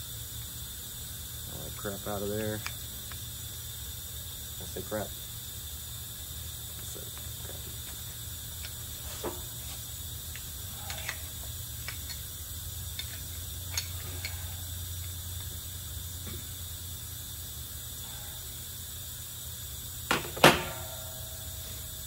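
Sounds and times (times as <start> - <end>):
steady low hum: 0.0 - 22.0
metal parts clicking and tapping: 10.3 - 12.3, 12.9 - 15.5.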